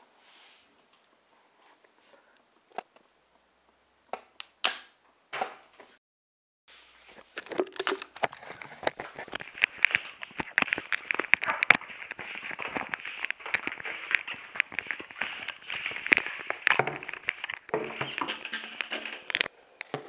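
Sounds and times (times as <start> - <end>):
rustling and tapping: 7.1 - 20.0.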